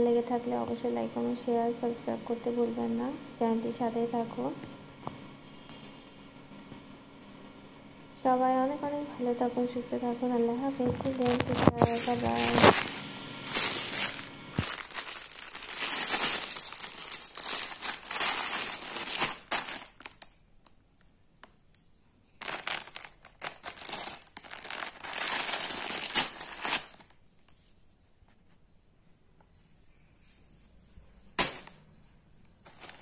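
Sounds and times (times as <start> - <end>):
plastic packaging crinkling: 10.2 - 20.4, 22.4 - 27.2, 31.4 - 31.8, 32.6 - 33.0.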